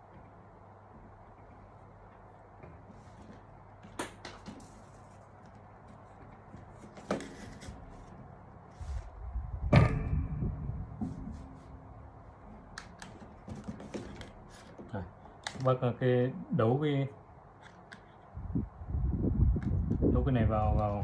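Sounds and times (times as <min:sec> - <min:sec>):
rustling of wires: 0:00.0 - 0:15.9
loud knock: 0:09.6 - 0:12.2.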